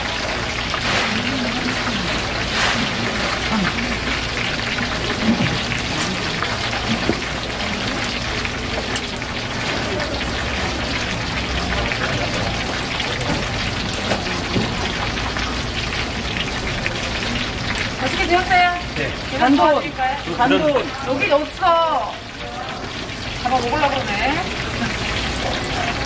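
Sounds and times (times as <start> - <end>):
batter deep-frying in hot oil: 0.0 - 26.0.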